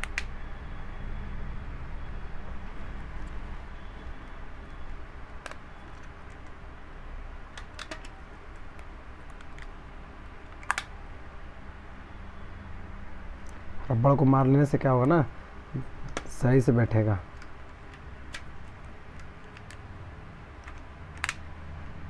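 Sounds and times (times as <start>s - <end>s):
steady low hum: 0.0s - 22.0s
rubber bands snapping: 20.6s - 21.4s.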